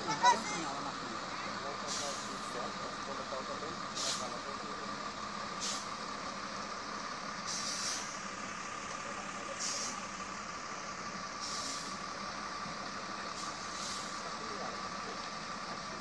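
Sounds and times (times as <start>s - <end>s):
diesel truck engine droning: 0.0s - 16.0s
short hissing bursts: 7.5s - 8.1s.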